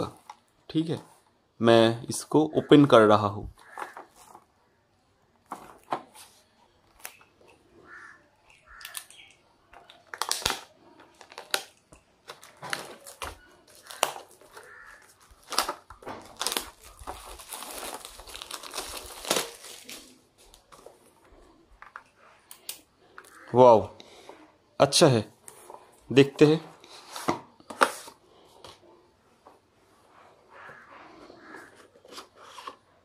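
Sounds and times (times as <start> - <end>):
plastic shrink-wrap crinkling and tearing: 9.8 - 21.1.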